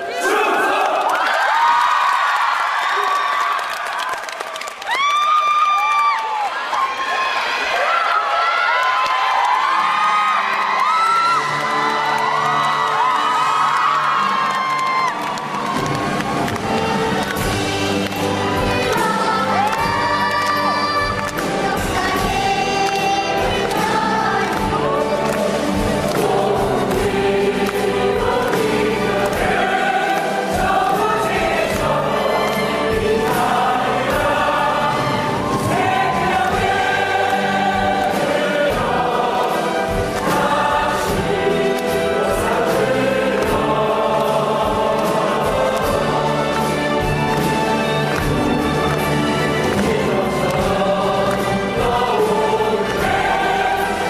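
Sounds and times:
instrumental accompaniment: 11.3 - 54.0
cast singing in chorus: 17.0 - 47.3, 49.3 - 54.0.

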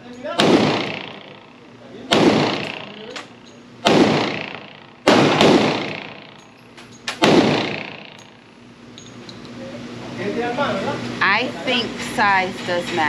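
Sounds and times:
pistol shots echoing: 0.3 - 6.5, 7.1 - 8.4.

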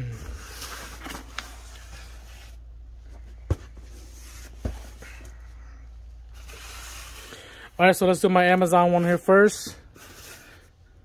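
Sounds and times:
steady low hum: 0.0 - 8.1.

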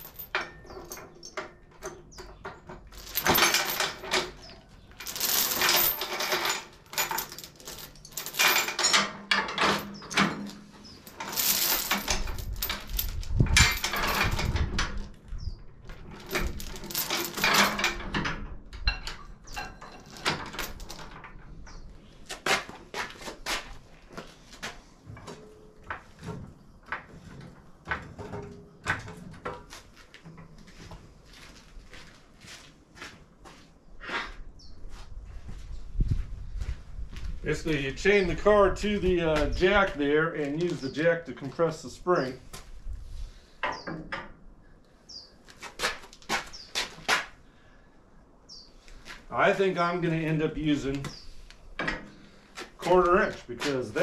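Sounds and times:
steel chain rattling on metal: 0.0 - 15.1, 15.8 - 21.6.

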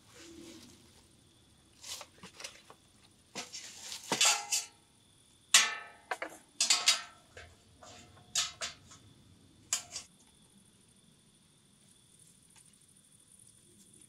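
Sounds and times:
metal grill parts clanking: 3.4 - 4.8, 5.6 - 9.0, 9.7 - 10.1.

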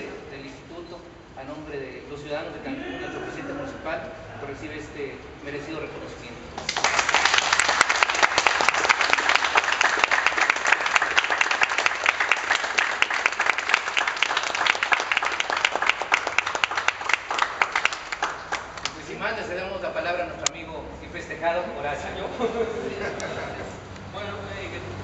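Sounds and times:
person clapping close by: 6.6 - 19.0
small group applauding: 6.6 - 19.1.

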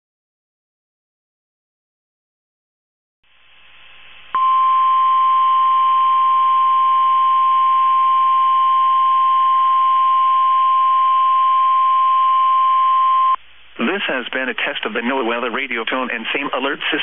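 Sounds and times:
loud high alarm beep: 4.4 - 13.4
radio hiss: 13.1 - 17.0.

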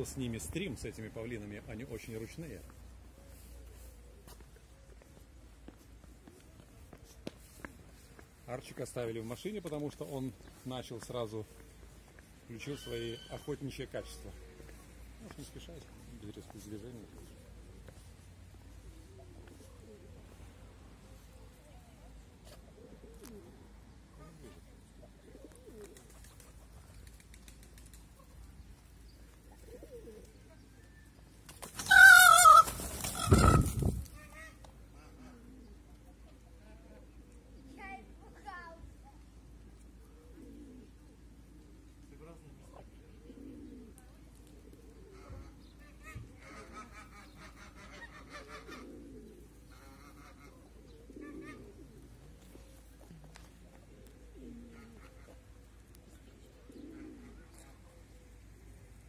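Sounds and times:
pigeons cooing: 0.0 - 59.0
small birds chirping: 0.2 - 31.6, 35.5 - 46.3, 49.2 - 59.0
peacock call: 12.6 - 13.6, 31.8 - 33.8.

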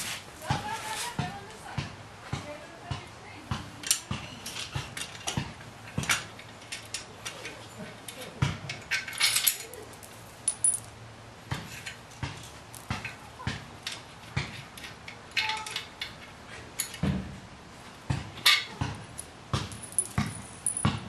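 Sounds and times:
small bolts clinking on concrete: 3.8 - 11.0, 14.8 - 17.0, 18.4 - 21.0.

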